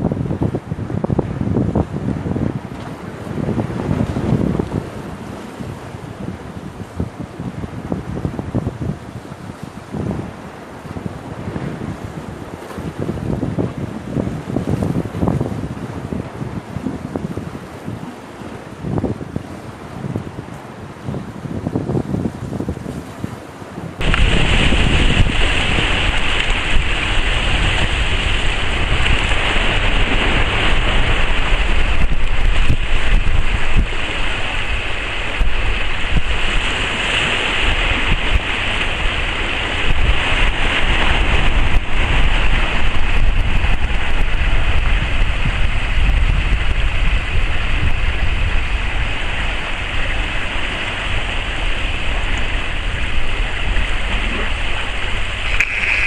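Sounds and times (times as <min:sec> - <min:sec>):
wind buffeting microphone: 0:00.0 - 0:56.0
water slapping against rocks: 0:24.0 - 0:45.3, 0:49.3 - 0:56.0.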